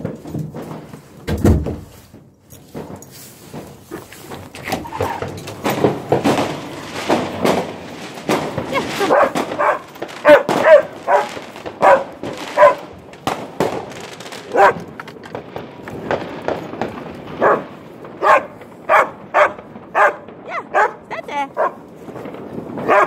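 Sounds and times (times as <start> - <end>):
dog barking and yelping: 8.8 - 12.9, 14.5 - 15.2, 17.4 - 21.8, 22.8 - 23.0.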